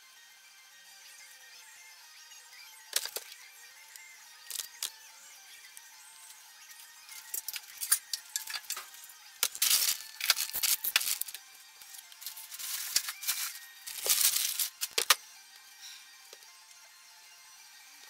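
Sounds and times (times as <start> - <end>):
hard objects clinking and rattling: 2.9 - 3.4, 4.5 - 4.9, 7.1 - 15.2.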